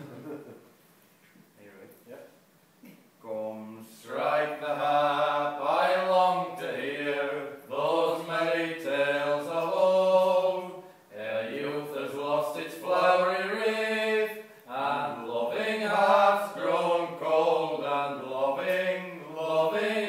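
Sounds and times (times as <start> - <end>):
men singing unaccompanied: 3.3 - 20.0.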